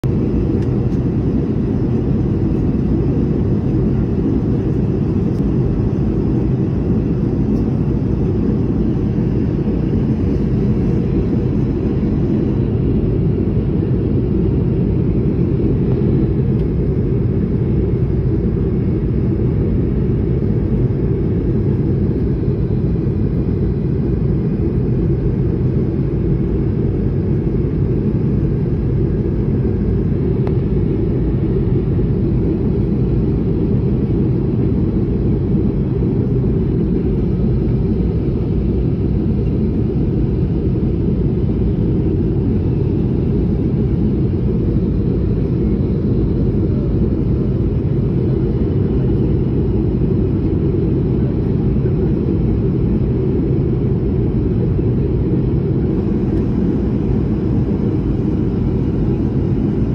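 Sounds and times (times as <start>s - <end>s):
airliner cabin roar: 0.0s - 59.9s.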